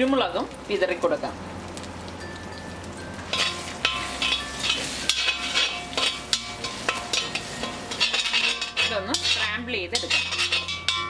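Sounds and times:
eggs sizzling in oil: 0.0s - 11.0s
spatula scraping pan: 3.3s - 11.0s.

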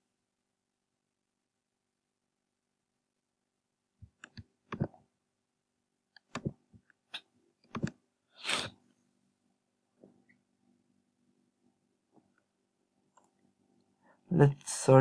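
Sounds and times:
computer mouse clicks: 4.1s - 5.0s, 6.1s - 6.6s, 7.7s - 8.0s
short hiss: 8.4s - 8.7s.

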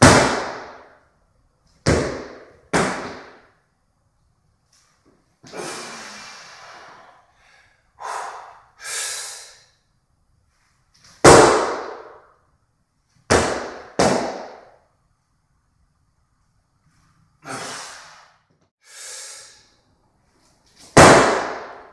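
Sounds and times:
man breathing hard: 5.5s - 9.8s, 17.4s - 19.8s.

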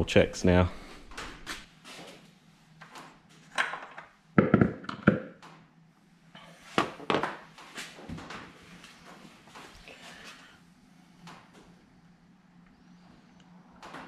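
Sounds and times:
louder knocks: 4.4s - 5.3s.

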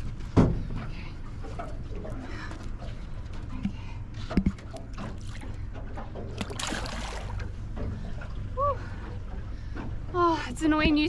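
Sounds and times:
steady low rumble: 0.0s - 11.0s
water splashing: 4.3s - 8.6s.

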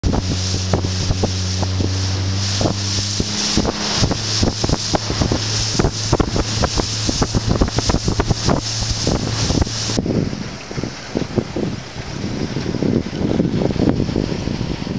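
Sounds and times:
boat engine running: 0.0s - 14.9s
hull slapping on waves: 0.0s - 14.9s
wind on microphone: 0.0s - 14.9s.

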